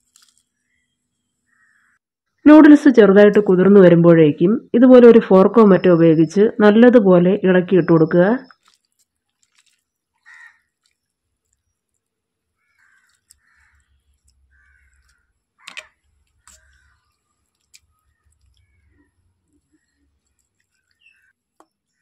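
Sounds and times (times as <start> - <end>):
fork stirring noodles in water: 8.5 - 21.6.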